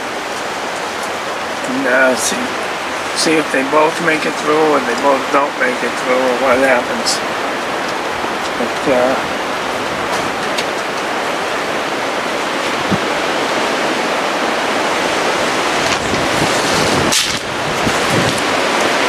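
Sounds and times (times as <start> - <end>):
strong wind on microphone: 6.4 - 19.0.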